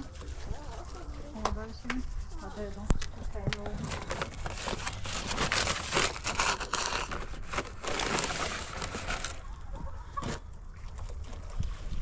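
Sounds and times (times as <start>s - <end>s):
material rustling and crinkling: 0.0s - 9.5s.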